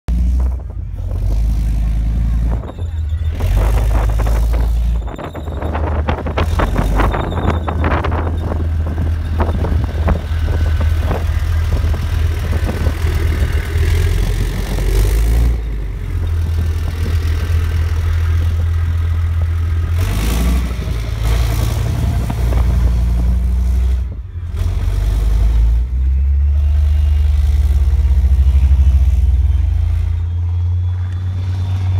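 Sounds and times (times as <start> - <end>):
deep diesel engine rumble: 0.1 - 31.9
rattling track clatter: 1.7 - 23.2.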